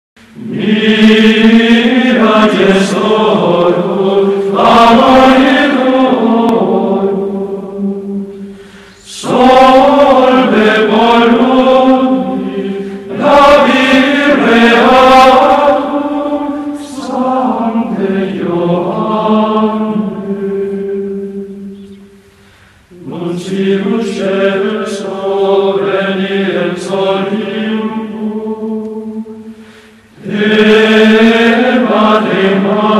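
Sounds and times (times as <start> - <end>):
voices chanting long notes: 0.3 - 32.9
short hissy accents: 8.3 - 10.4.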